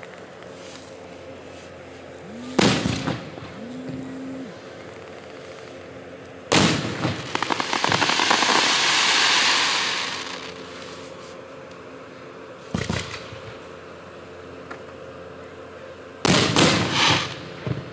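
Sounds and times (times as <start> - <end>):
firework crackling: 2.6 - 3.5, 6.5 - 11.1, 16.3 - 17.9.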